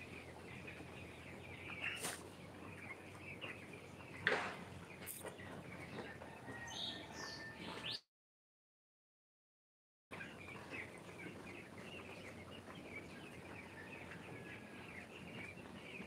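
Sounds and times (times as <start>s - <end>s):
chicks peeping and chirping: 0.0s - 8.0s, 10.1s - 16.0s.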